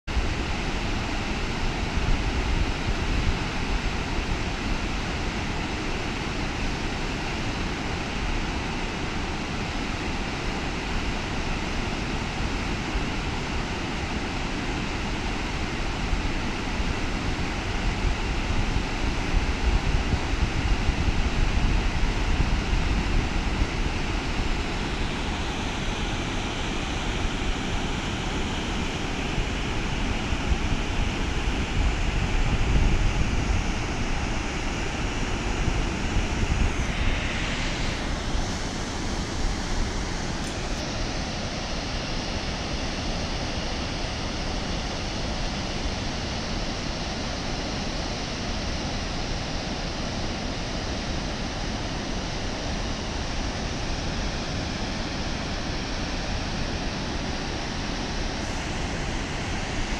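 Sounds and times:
waterfall roaring: 0.1s - 59.9s
wind buffeting microphone: 15.7s - 40.9s.

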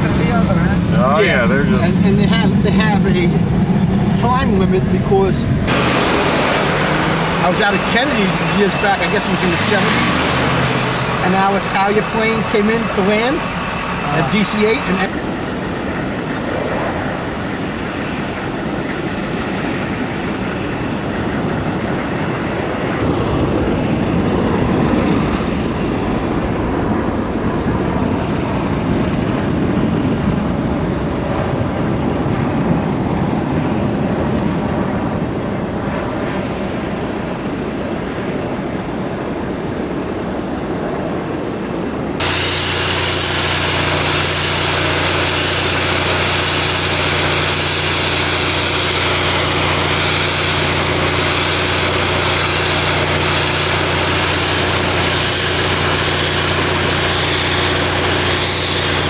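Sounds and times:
low droning engine hum: 0.0s - 59.0s
steady rushing noise: 0.0s - 59.0s
pickup truck engine running: 5.5s - 23.0s, 42.2s - 59.0s.

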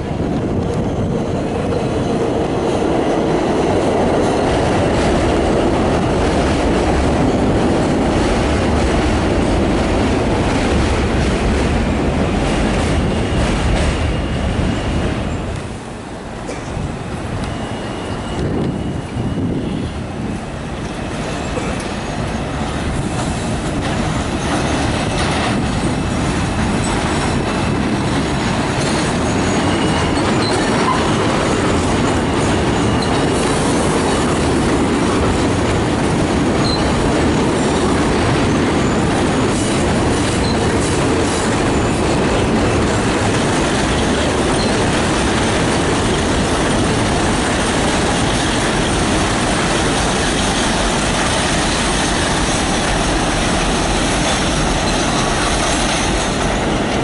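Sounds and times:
train wheels rumbling on rails: 0.0s - 57.0s
high wheel squeal: 17.4s - 20.0s, 28.8s - 34.4s, 36.6s - 37.0s, 40.4s - 42.2s, 44.0s - 44.9s.

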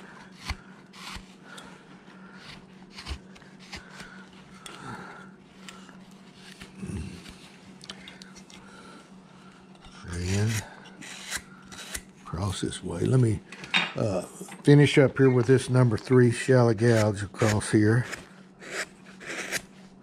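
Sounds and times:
steady low hum: 0.0s - 20.0s
gouge cutting wood: 0.4s - 1.3s, 2.5s - 4.2s, 10.1s - 12.0s, 16.8s - 19.6s.

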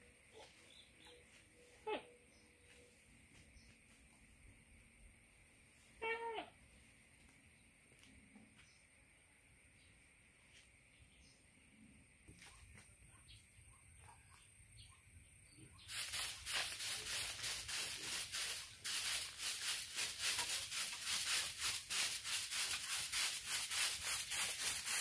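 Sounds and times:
hand tool rasping bamboo: 16.0s - 25.0s.

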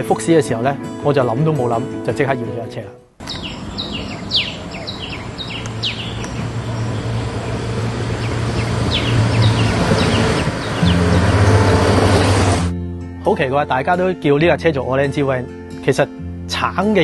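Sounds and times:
birds chirping: 3.2s - 12.7s
van engine passing by: 3.6s - 12.7s.

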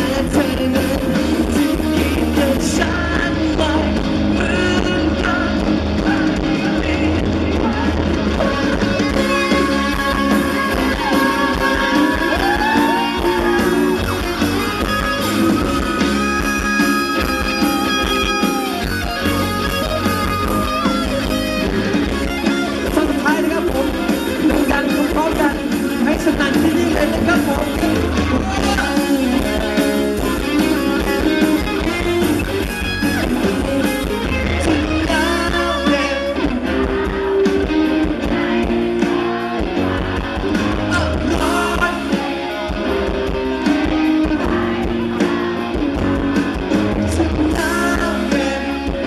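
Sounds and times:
man singing into microphone: 0.0s - 13.7s, 22.8s - 32.5s, 33.4s - 36.6s, 40.8s - 42.7s, 46.9s - 49.0s
drums: 0.0s - 49.0s
electric guitar: 0.0s - 49.0s.

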